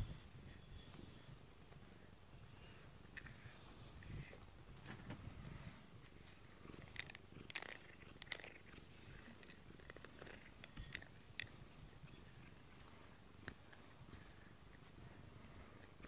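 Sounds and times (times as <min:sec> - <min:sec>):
cat purring: 0:06.3 - 0:15.8.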